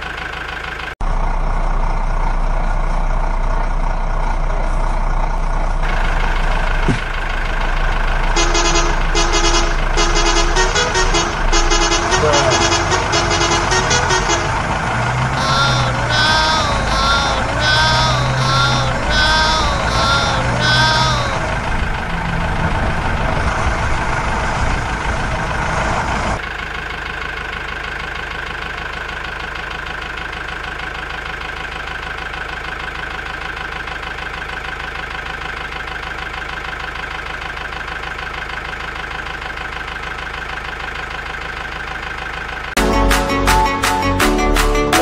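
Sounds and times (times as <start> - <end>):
engine idling: 0.0 - 44.2
loud rough noise: 5.8 - 26.4.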